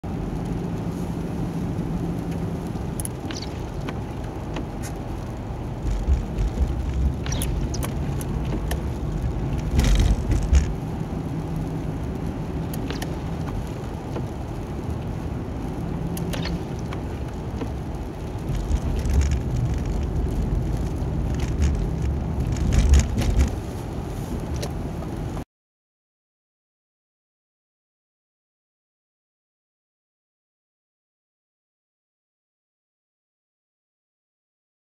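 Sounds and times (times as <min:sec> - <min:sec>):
tyre and engine rumble: 0:00.0 - 0:25.4
sharp clicks: 0:05.9 - 0:08.9, 0:12.7 - 0:13.6, 0:16.1 - 0:17.0.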